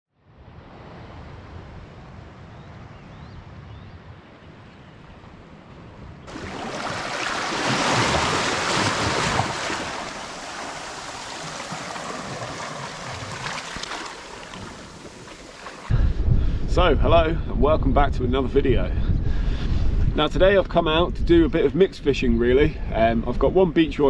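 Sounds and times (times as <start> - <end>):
seawater surging over rocks: 6.3 - 15.9.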